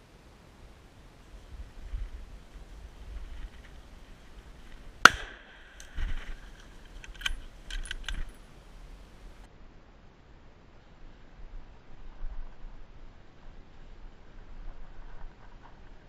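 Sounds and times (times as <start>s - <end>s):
rifle shot: 5.0s - 6.5s
sharp metallic clicks: 5.0s - 8.6s.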